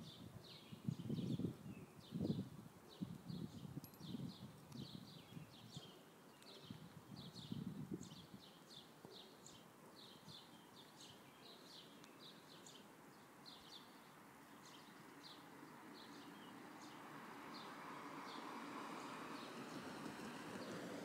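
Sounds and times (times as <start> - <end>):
small songbirds chirping: 0.0 - 20.9
car road noise: 16.6 - 21.0.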